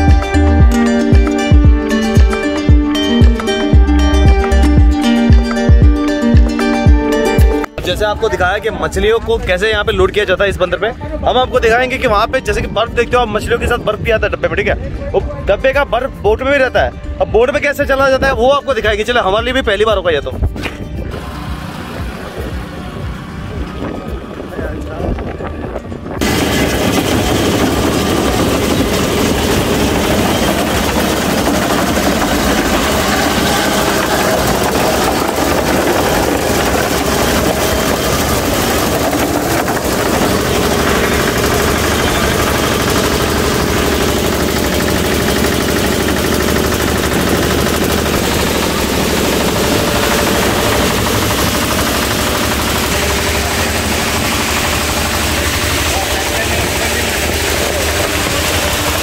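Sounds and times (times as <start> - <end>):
ice-crushing machine running: 21.1 - 24.0, 26.2 - 59.0.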